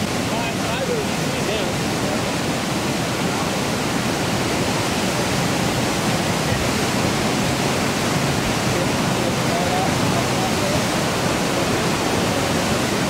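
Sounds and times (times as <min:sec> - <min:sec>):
floodwater pouring over a dam: 0:00.0 - 0:13.0.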